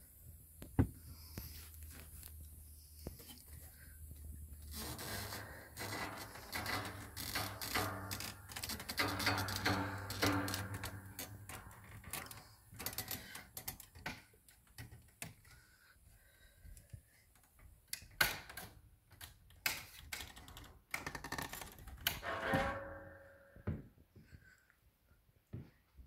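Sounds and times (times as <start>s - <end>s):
ladder squeak: 4.7s - 13.3s, 22.2s - 23.6s.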